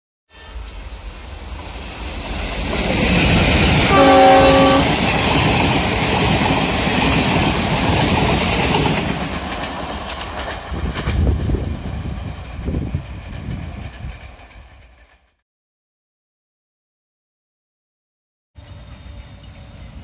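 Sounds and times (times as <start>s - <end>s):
train horn: 0.3s - 0.7s, 3.8s - 5.1s
train wheels clattering on rail: 1.5s - 15.4s.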